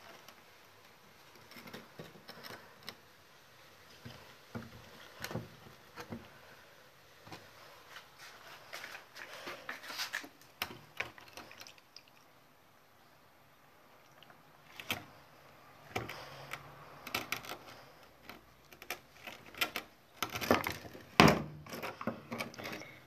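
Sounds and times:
plastic plant pot handled: 7.3 - 11.5.

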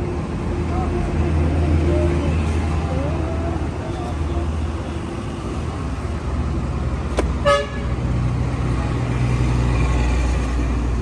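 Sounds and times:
traffic rumble: 0.0 - 11.0
vehicle horn toot: 7.4 - 7.9.

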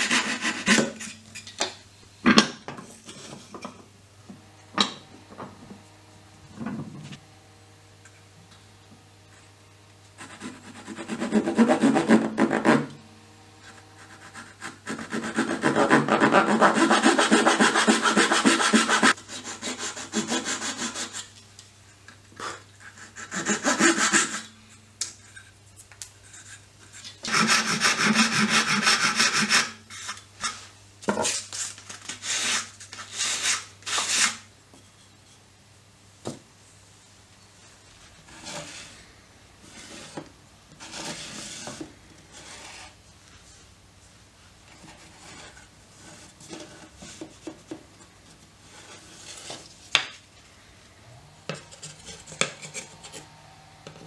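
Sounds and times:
sanding block rasping wood: 0.0 - 1.0, 10.2 - 12.9, 13.7 - 21.3, 22.9 - 24.5, 27.2 - 29.8
hand saw cutting wood: 0.0 - 1.2, 10.2 - 12.9, 13.7 - 21.3, 22.4 - 24.5, 27.2 - 30.6, 51.5 - 53.4.

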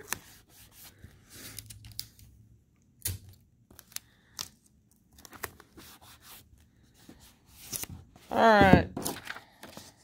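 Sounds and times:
paper and tape rustling: 3.7 - 10.0.

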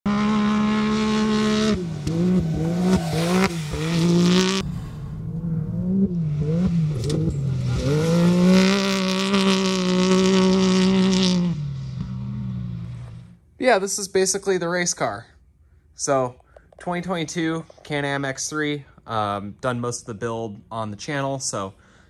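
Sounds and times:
engine revving at high revs: 0.1 - 13.3.

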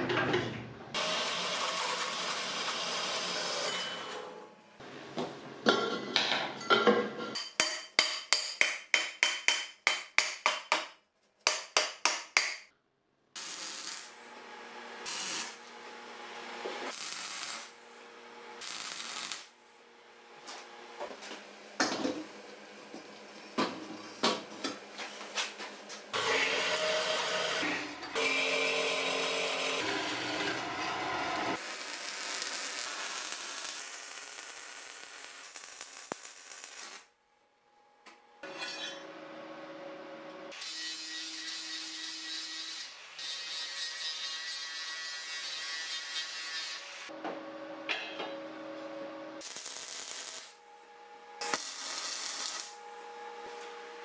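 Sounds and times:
welding crackling hiss: 13.4 - 14.2, 15.0 - 15.6, 16.9 - 17.8, 18.6 - 19.6, 31.6 - 37.1, 49.4 - 50.6, 51.4 - 52.8.

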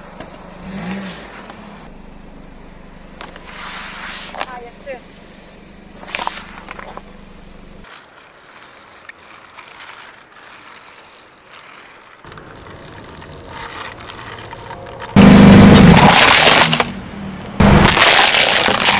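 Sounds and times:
low steady hum: 4.4 - 7.9
toy car wheels clicking on asphalt: 7.8 - 17.0, 17.8 - 18.9.

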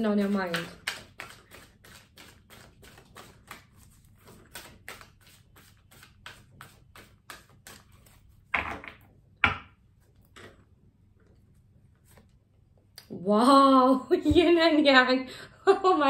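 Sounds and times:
cards being shuffled: 0.2 - 8.9.

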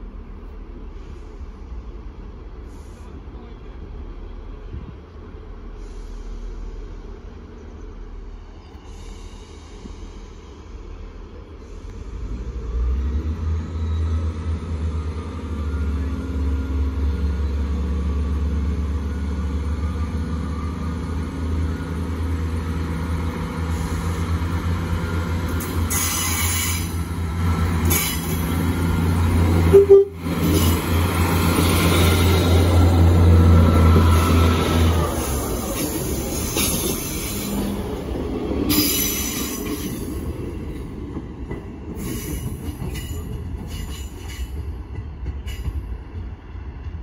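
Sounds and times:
diesel train engines rumbling: 0.0 - 47.0
train horn toot: 29.6 - 30.3.

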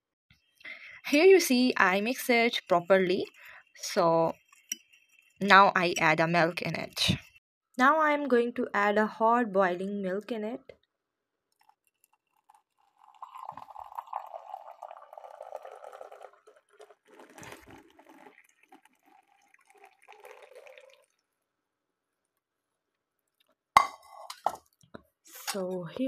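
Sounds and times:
milk pouring into mug: 2.3 - 5.5, 11.5 - 21.5.

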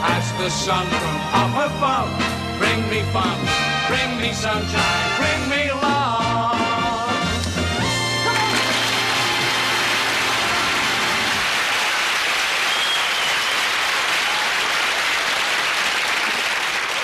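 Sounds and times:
band music held notes: 0.0 - 11.4
audience applauding: 8.1 - 17.0.

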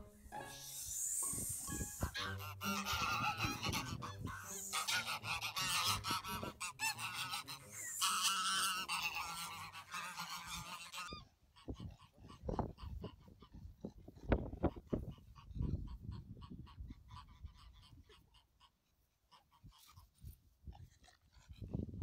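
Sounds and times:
geese honking: 0.0 - 13.8.

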